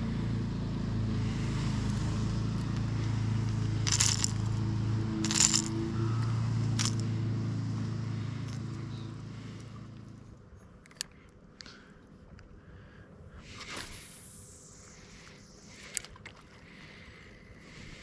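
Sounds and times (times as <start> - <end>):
steady low hum: 0.0 - 18.0
metallic clinks of fishing hooks: 3.8 - 4.6, 5.2 - 5.8, 6.8 - 7.0.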